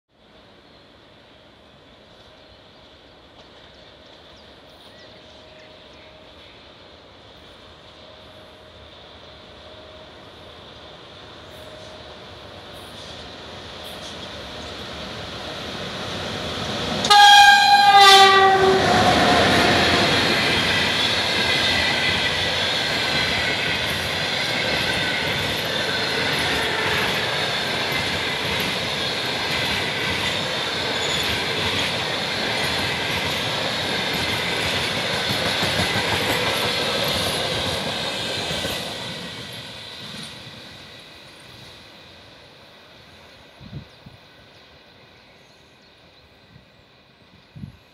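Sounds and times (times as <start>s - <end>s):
train cars rumbling and clattering: 10.6s - 41.6s
train horn blast: 17.0s - 20.3s.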